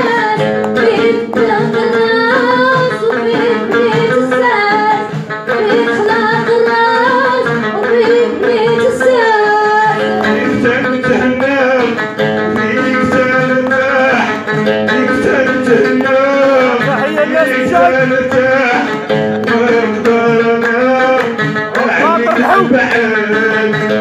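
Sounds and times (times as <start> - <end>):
plucked long-necked lute: 0.0 - 24.0
man singing: 10.0 - 24.0.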